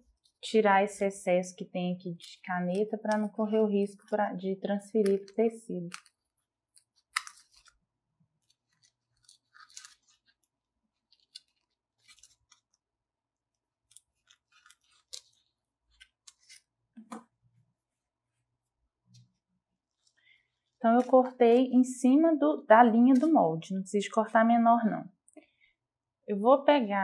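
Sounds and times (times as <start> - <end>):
scissors snipping foam: 5.0 - 7.8.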